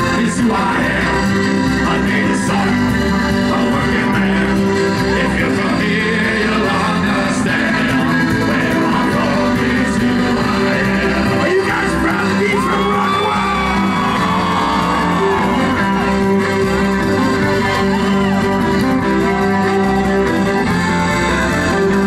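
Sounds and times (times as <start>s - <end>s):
fiddle: 0.0s - 22.0s
rock band playing: 0.0s - 22.0s
voices whooping and shouting: 12.1s - 16.3s, 17.4s - 20.2s.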